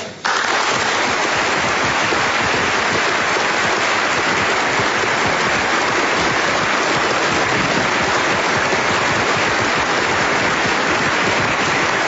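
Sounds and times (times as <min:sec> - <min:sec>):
large audience applauding: 0:00.2 - 0:12.0.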